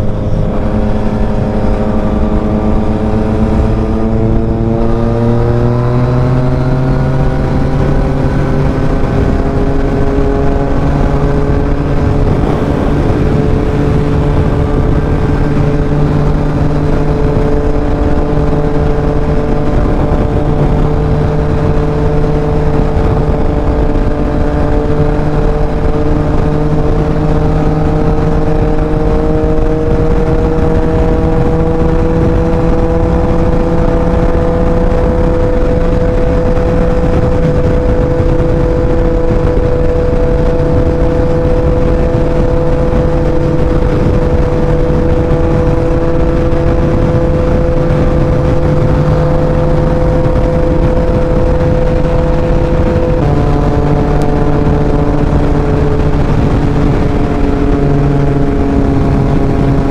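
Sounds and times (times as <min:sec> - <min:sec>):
heavy wind noise: 0:00.0 - 0:59.9
motorcycle engine cruising: 0:00.0 - 0:59.9.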